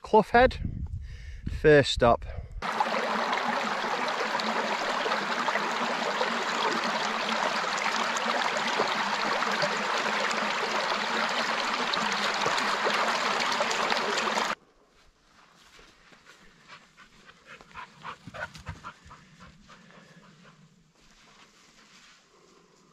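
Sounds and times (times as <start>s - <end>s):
stream babbling over stones: 2.6s - 14.6s.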